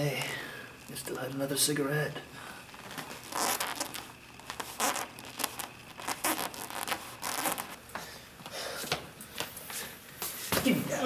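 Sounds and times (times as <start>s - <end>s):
clothing rustling: 2.6s - 7.8s.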